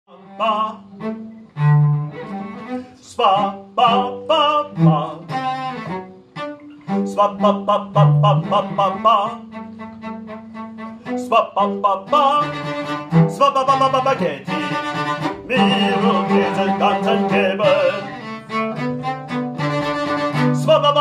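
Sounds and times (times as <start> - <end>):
man singing operatically: 0.1 - 0.9, 3.0 - 5.5, 6.9 - 9.6, 11.1 - 18.4, 20.1 - 21.0
cello bowing low notes: 0.1 - 21.0.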